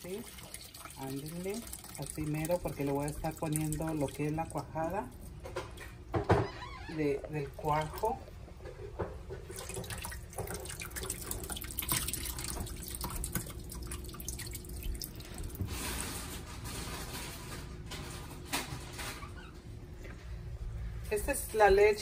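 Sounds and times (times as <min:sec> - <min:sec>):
dripping patter: 0:00.0 - 0:06.4, 0:07.0 - 0:08.4, 0:09.0 - 0:16.9
liquid pouring and splashing into colander: 0:00.0 - 0:06.4, 0:07.3 - 0:08.2, 0:09.0 - 0:17.2.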